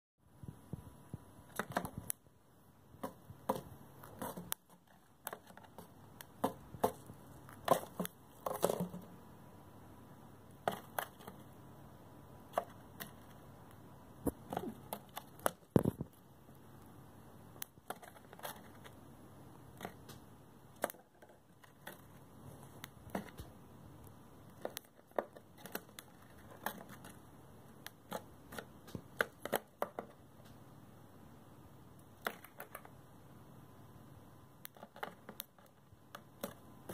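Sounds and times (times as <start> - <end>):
bird beak crunching cardboard: 3.0 - 9.2, 19.7 - 23.5, 24.5 - 30.1.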